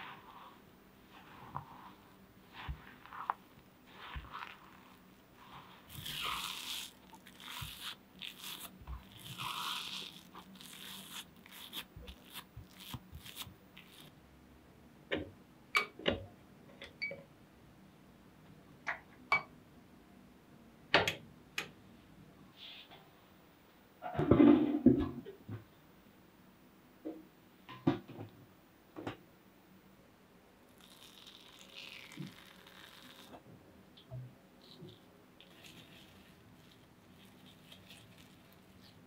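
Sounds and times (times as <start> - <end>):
spatula stirring cookie dough: 1.0 - 14.1.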